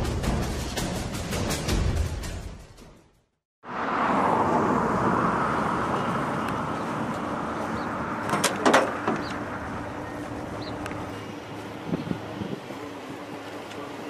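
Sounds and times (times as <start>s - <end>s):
outdoor background noise: 3.6s - 14.0s.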